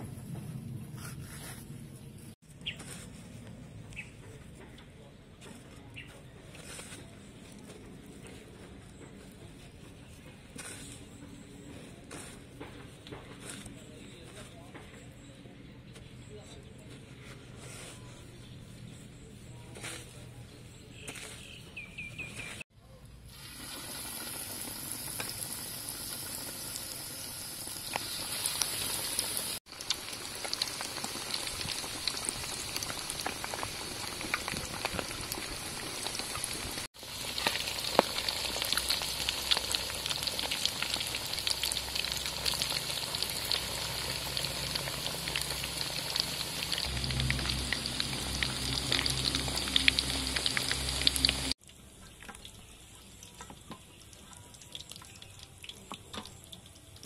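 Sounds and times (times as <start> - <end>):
chicken deep-frying in oil: 21.0 - 57.0.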